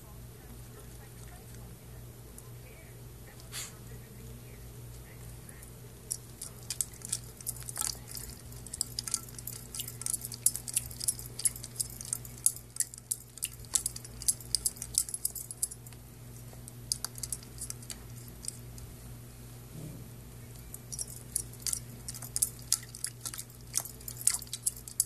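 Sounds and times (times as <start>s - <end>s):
ice cubes clinking in metal bowl: 6.1s - 15.9s, 16.9s - 18.6s, 20.8s - 25.0s.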